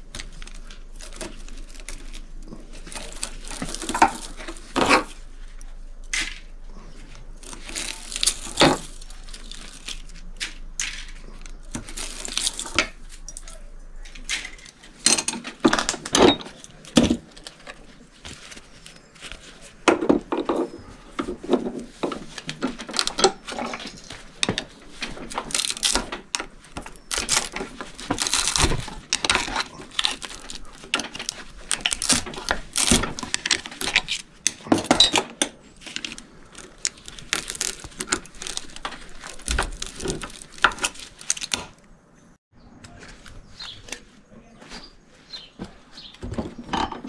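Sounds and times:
metal clinks scrapes and rattles: 22.8 - 25.9.

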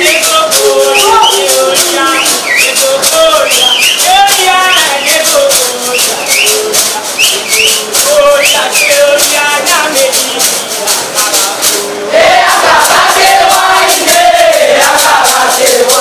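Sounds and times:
group of voices singing: 0.0 - 16.0
rhythmic shaker rattling: 0.0 - 16.0.

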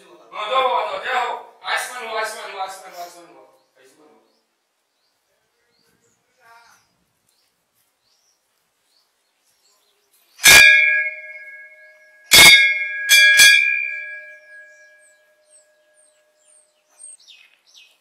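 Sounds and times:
temple bell ringing: 10.4 - 16.2.

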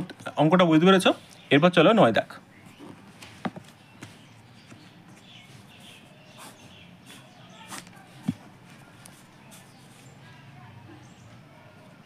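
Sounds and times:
pen strokes on paper: 5.2 - 7.9, 9.0 - 10.2.

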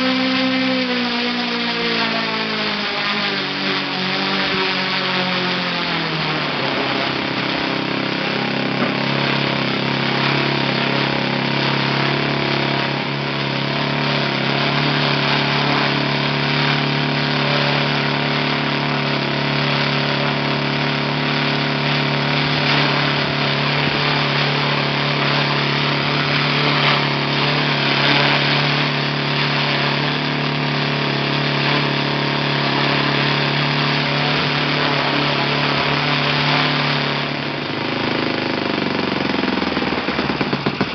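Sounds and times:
model engine running: 0.0 - 40.9.

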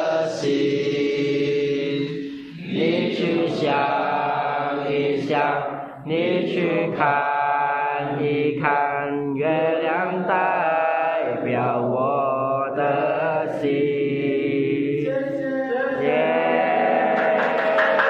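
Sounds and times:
men singing in unison: 0.0 - 18.0
people clapping: 16.4 - 18.0.

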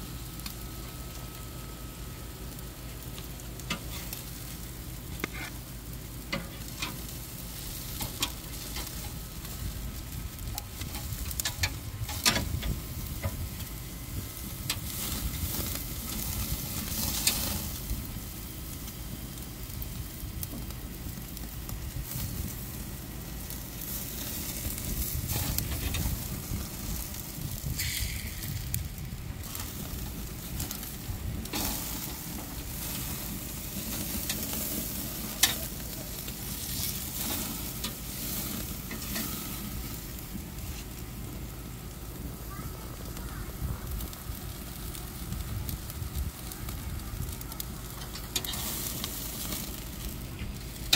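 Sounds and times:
charcoal fire crackling and popping: 0.0 - 50.9
steaks sizzling on a grill: 0.0 - 50.9.

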